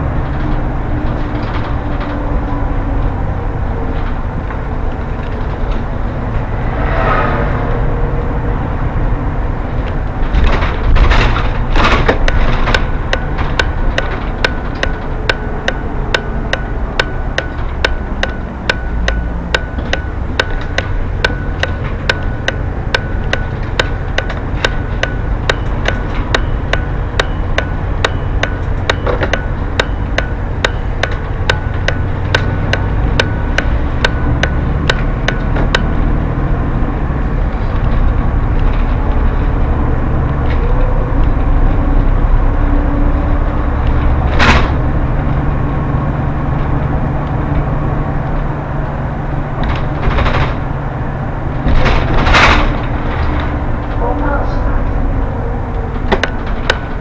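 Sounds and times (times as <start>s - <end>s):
bus engine and tyres drone: 0.0s - 57.0s
turn signal ticking: 11.7s - 36.7s, 54.9s - 57.0s.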